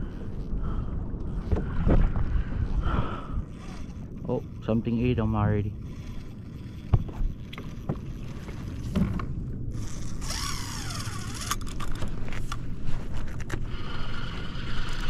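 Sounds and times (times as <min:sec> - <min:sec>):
fishing reel drag buzzing: 0:03.4 - 0:08.9, 0:09.7 - 0:15.0.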